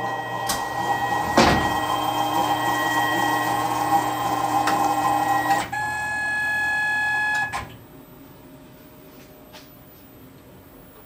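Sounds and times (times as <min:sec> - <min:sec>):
lathe drive motors whining: 0:00.0 - 0:07.8.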